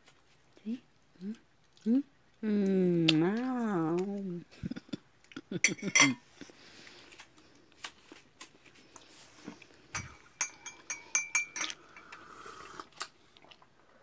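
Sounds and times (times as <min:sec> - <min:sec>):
cutlery clinking against plates: 0:05.6 - 0:06.2, 0:10.0 - 0:11.8.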